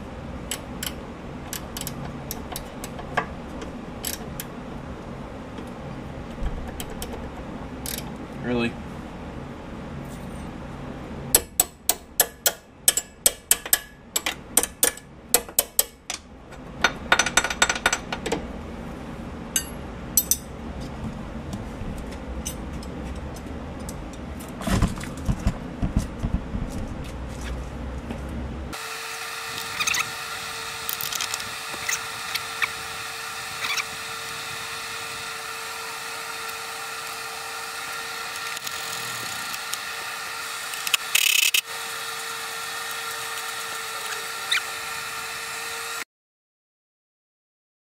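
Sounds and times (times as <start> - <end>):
wrench ratchet clicking: 40.7 - 41.6.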